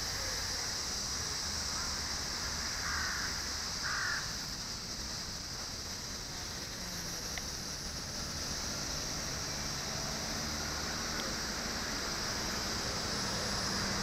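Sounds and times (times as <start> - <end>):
high-pitched hiss: 0.0 - 14.0
crow cawing: 2.8 - 4.3.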